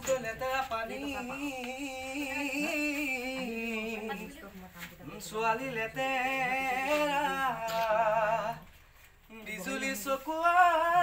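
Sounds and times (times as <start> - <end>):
person singing unaccompanied: 0.0 - 11.0.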